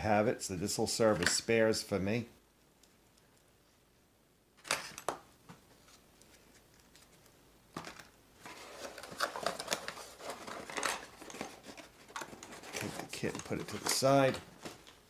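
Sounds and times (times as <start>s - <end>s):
parts clattering into a box: 7.8s - 14.3s
cardboard rustling and scraping: 8.4s - 14.9s.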